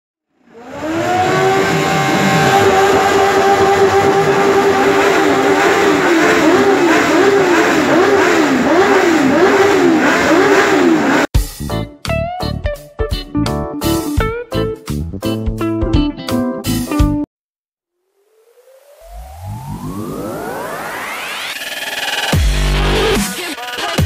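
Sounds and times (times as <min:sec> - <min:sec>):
motorcycle engine revving: 0:00.4 - 0:11.3
electric guitar music: 0:11.7 - 0:17.2.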